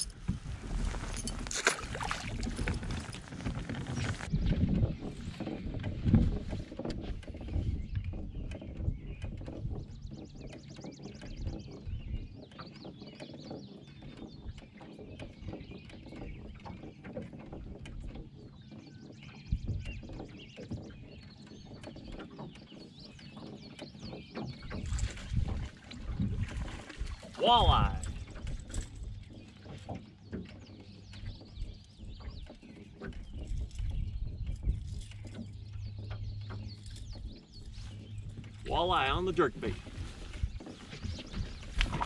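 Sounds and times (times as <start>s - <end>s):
water lapping against boat hull: 0.0s - 42.0s
birds calling: 26.7s - 42.0s.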